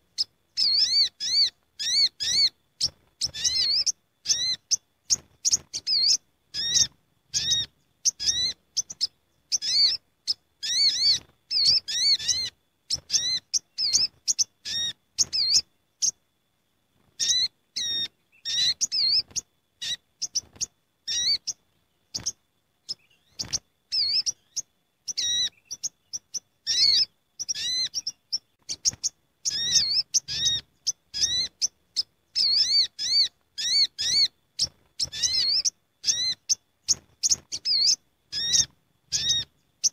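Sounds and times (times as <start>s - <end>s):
birds chirping high and sharp: 0.0s - 16.2s, 17.0s - 39.9s.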